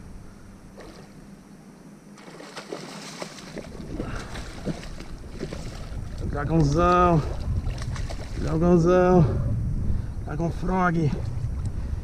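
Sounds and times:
fish thrashing in water: 2.2 - 6.3, 7.2 - 8.5.

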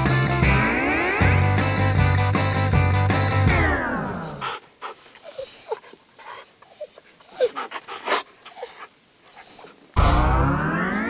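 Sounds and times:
dogs whining and yipping: 3.5 - 9.8.

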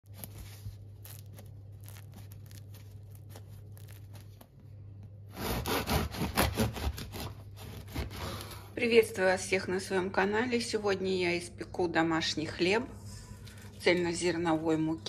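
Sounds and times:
bread crust crackling: 0.0 - 8.8
knife sawing through crust: 5.3 - 8.6.

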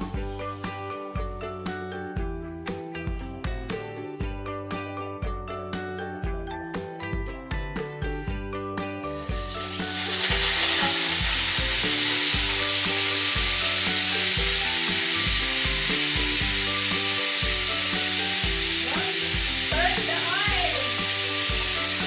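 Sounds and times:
background music: 0.0 - 22.0
fish sizzling in hot oil: 9.0 - 22.0.

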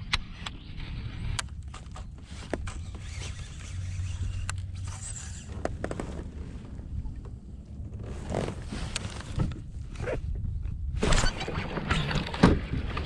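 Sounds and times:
low rumble: 3.8 - 11.4.

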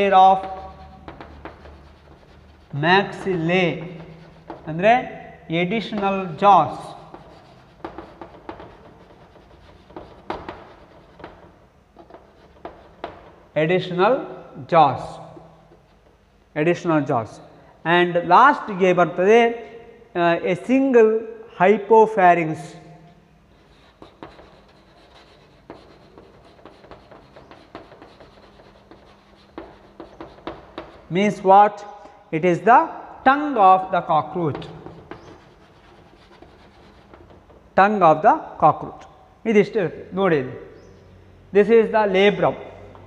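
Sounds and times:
chalk scraping: 0.0 - 4.8, 5.8 - 13.2, 23.5 - 31.2, 34.6 - 37.5
chalk tapping on blackboard: 0.0 - 4.8, 5.8 - 13.5, 23.6 - 31.2, 34.5 - 37.6.

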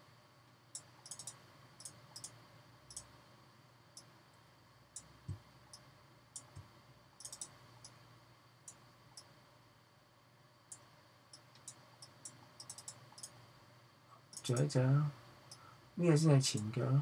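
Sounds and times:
faint steady hum: 0.0 - 17.0
computer mouse clicking: 0.8 - 3.1, 6.4 - 8.0, 10.7 - 13.4.

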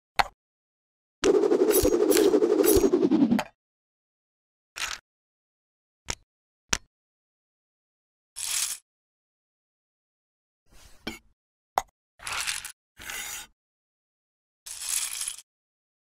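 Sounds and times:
swish: 1.2 - 3.5.

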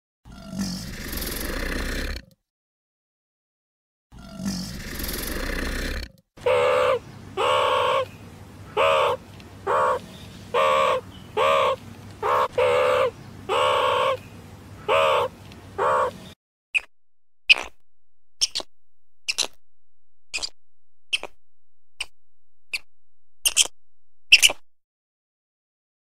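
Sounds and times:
meerkats calling: 6.4 - 16.9, 19.3 - 19.6, 22.7 - 23.7, 24.3 - 24.6.

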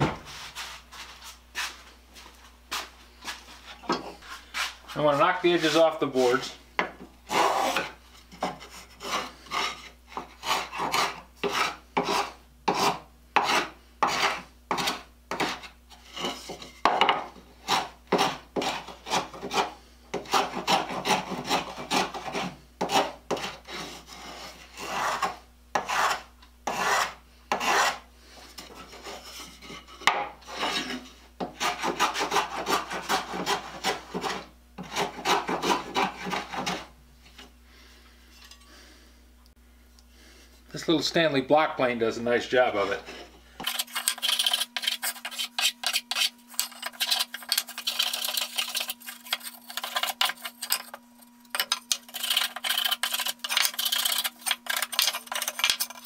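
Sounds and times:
hand plane shaving wood: 7.3 - 16.7, 17.6 - 28.0, 28.6 - 36.9, 42.8 - 56.0.

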